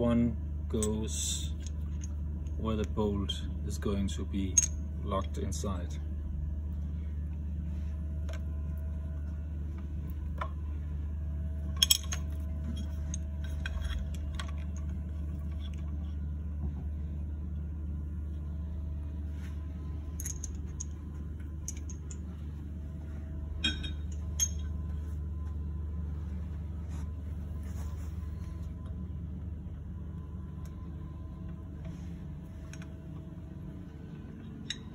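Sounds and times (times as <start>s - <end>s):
steady low hum: 0.0s - 34.9s
small metal clinks: 21.6s - 22.3s, 23.6s - 24.8s.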